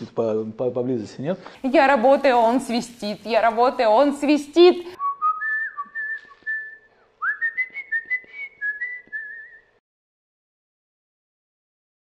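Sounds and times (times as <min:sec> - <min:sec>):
person whistling a tune: 0:05.0 - 0:09.8.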